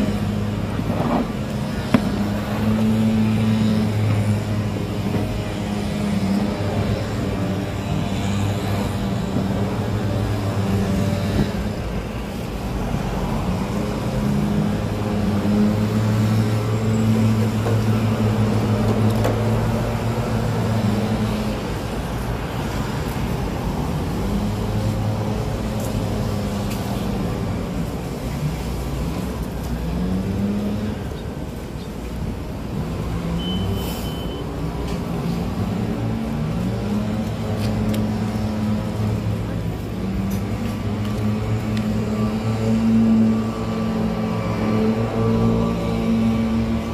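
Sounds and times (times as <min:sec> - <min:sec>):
road traffic drone: 0:00.0 - 0:46.9
short high beep: 0:33.4 - 0:34.5.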